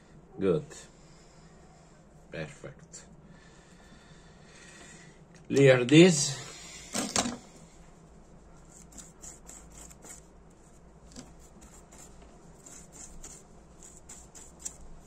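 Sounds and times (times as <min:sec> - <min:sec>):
brush scrubbing: 0:08.6 - 0:15.0.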